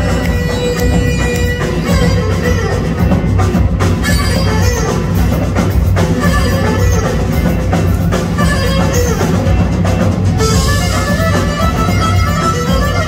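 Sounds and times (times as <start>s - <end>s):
drum kit beat: 0.0s - 13.0s
keyboard: 0.0s - 13.0s.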